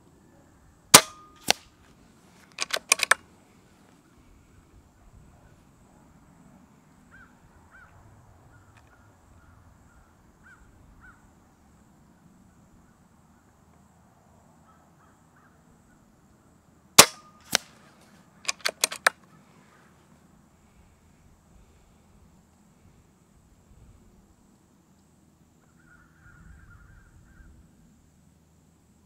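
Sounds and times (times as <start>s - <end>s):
air rifle shot: 0.9s - 1.7s, 17.0s - 17.8s
metallic clicks of rifle action: 1.0s - 1.7s, 2.4s - 3.2s, 17.0s - 17.8s, 18.4s - 19.3s.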